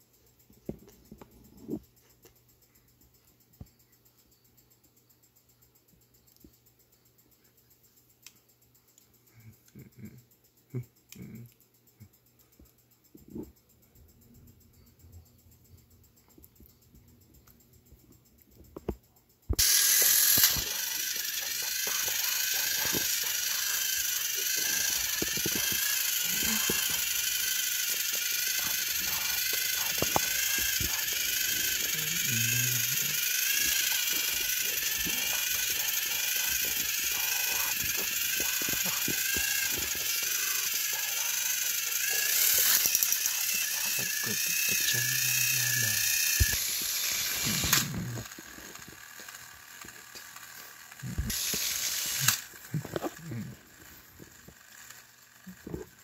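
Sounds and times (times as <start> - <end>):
gears and wheels clicking: 13.2 - 56.0
toy electric motors whining: 19.5 - 56.0.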